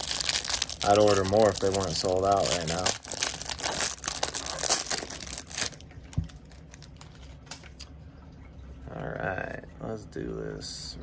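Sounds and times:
plastic wrap crinkling: 0.0s - 7.5s.

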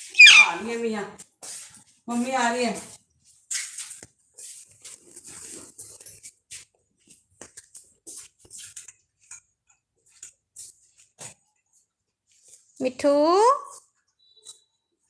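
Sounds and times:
scratchy rustles: 2.8s - 7.3s.

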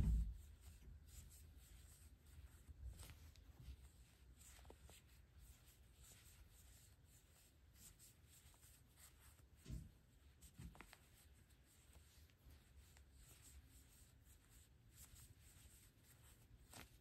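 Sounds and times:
soft bumps: 0.0s - 1.0s
yarn scratching and rustling: 0.0s - 17.0s.

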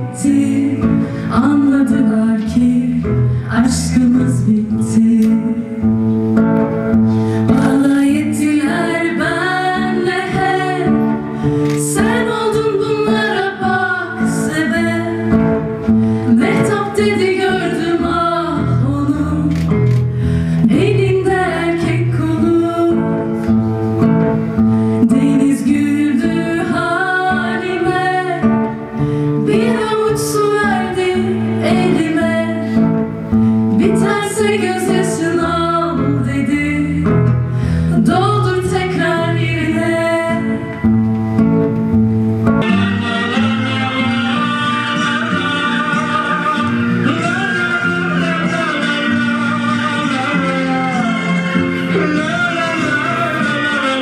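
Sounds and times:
young women singing: 0.0s - 5.8s, 7.4s - 19.5s, 20.6s - 23.4s, 25.0s - 33.0s, 33.7s - 37.2s, 37.9s - 40.8s
acoustic guitar: 0.0s - 54.0s.

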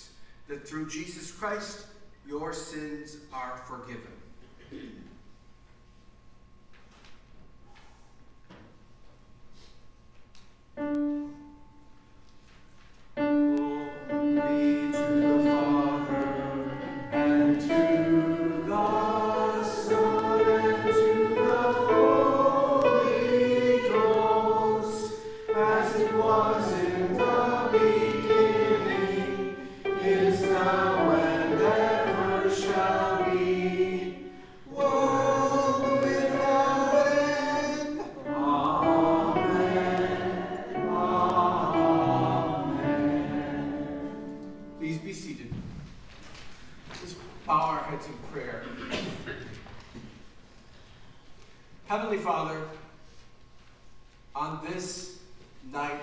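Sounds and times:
group singing a hymn: 13.2s - 44.8s.

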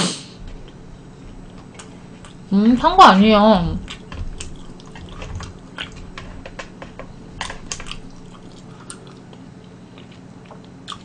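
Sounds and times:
faint steady hum: 0.0s - 11.0s
person chewing: 0.4s - 2.5s, 3.8s - 6.8s, 7.4s - 11.0s.

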